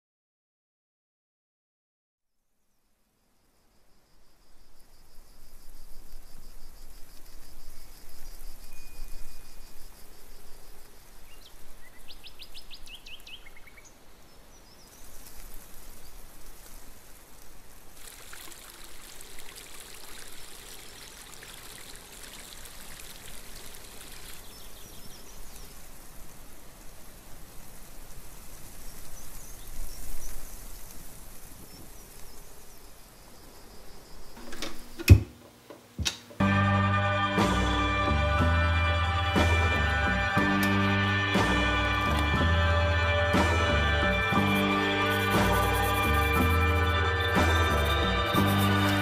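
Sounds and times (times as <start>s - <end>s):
bird chirping: 11.2s - 15.2s
crackling patter: 14.9s - 20.8s, 25.0s - 32.9s, 44.2s - 49.0s
rushing water-like hiss: 14.9s - 32.7s, 44.2s - 49.0s.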